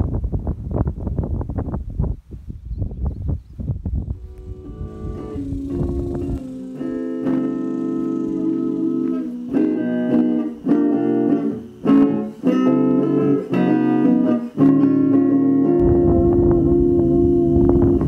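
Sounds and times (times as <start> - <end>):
guitar background music: 4.1 - 18.0.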